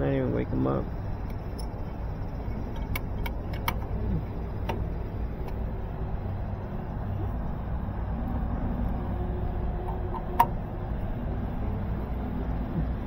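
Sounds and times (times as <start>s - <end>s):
steady low rumble: 0.0s - 13.0s
sharp metallic clicks: 1.0s - 5.7s.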